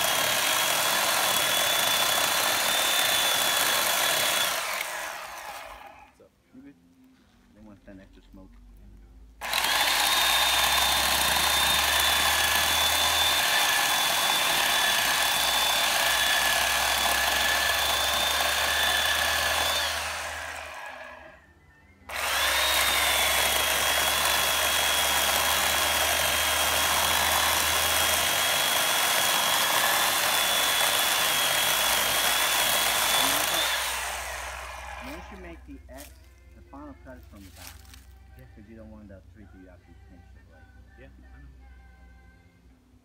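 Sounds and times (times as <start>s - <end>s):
electric chainsaw cutting wood: 0.0s - 6.2s, 9.4s - 21.4s, 22.1s - 36.1s.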